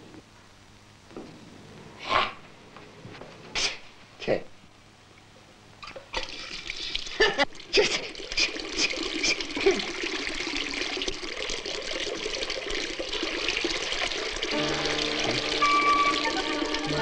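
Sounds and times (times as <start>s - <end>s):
tap water gushing into basin: 5.9s - 17.0s.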